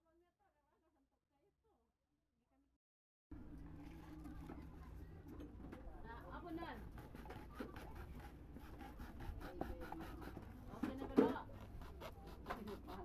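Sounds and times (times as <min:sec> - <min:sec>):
knife cutting rubber: 0:06.7 - 0:13.0.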